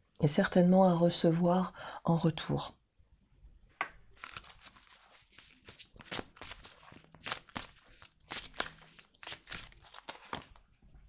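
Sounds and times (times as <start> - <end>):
cards being shuffled: 4.2 - 10.7.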